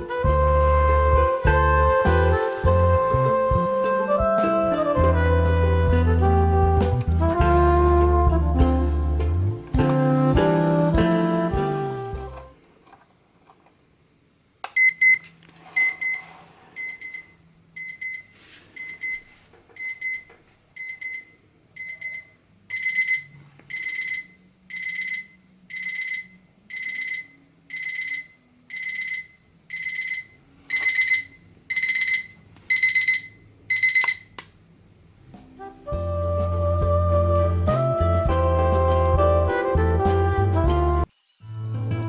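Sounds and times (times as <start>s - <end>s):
alarm clock beeping: 15.8s - 19.2s, 21.8s - 34.3s.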